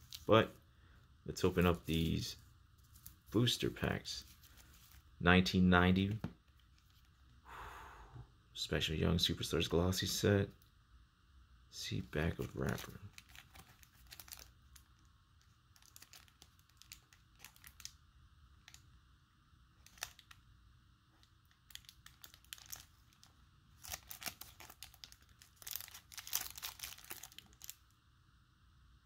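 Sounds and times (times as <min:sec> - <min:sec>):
plastic wrapper crinkling: 0:00.0 - 0:00.4, 0:12.3 - 0:18.0, 0:19.8 - 0:20.4, 0:21.1 - 0:27.9.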